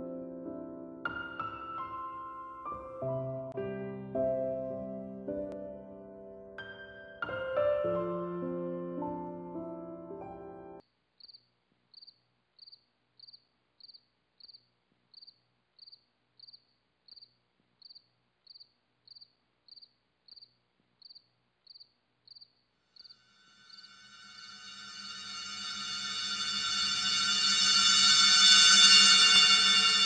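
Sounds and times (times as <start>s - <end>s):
soft piano music: 0.0s - 10.8s, 23.4s - 30.0s
cricket chirping: 11.2s - 30.0s.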